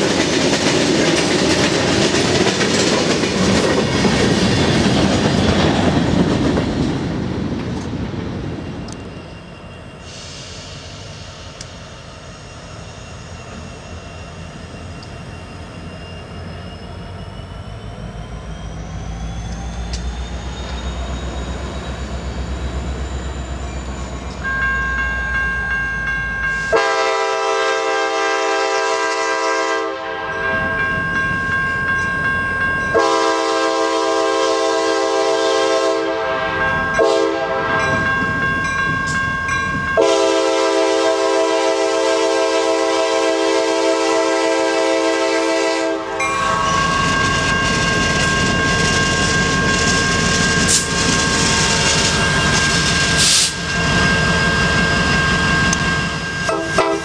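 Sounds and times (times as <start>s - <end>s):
diesel locomotive rumble: 0.0s - 57.0s
locomotive air horn: 26.7s - 30.5s, 33.0s - 37.9s, 40.0s - 46.3s, 56.5s - 57.0s.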